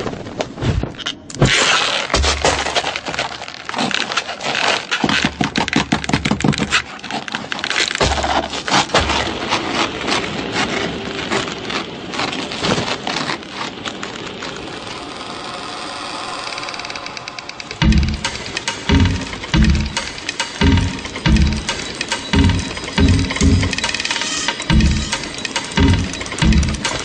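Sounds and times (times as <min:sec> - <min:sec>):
crackling and scraping: 0:00.0 - 0:27.0.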